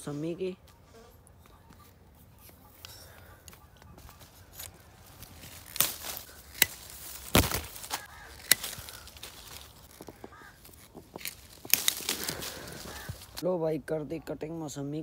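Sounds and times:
leaves rustling: 0:02.1 - 0:13.5
pruning shears snipping branches: 0:04.5 - 0:13.4.

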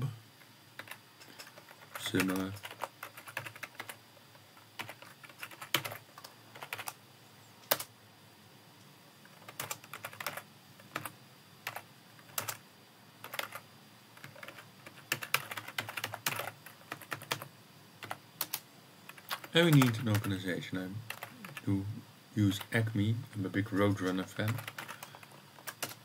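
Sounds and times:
typing on computer keyboard: 0:00.8 - 0:04.0, 0:04.6 - 0:07.0, 0:07.7 - 0:07.9, 0:09.2 - 0:11.1, 0:11.7 - 0:12.6, 0:13.2 - 0:13.6, 0:14.2 - 0:20.3, 0:21.1 - 0:21.6, 0:24.1 - 0:26.0.

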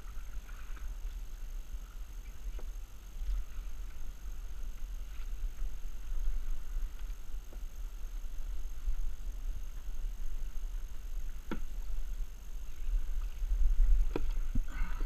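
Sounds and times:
wind rumbling on microphone: 0:00.0 - 0:15.0
water slopping against kayak hull: 0:11.2 - 0:15.0.

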